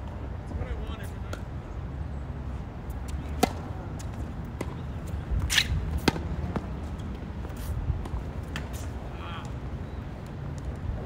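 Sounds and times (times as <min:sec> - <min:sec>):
shoe scuff on court: 0:03.0 - 0:09.0
tennis racket hitting ball: 0:03.3 - 0:04.8, 0:05.4 - 0:07.0.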